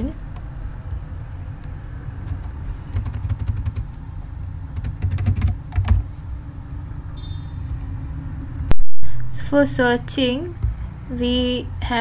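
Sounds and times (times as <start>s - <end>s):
low steady hum: 0.0s - 12.0s
typing on keyboard: 2.3s - 3.9s, 4.8s - 6.0s.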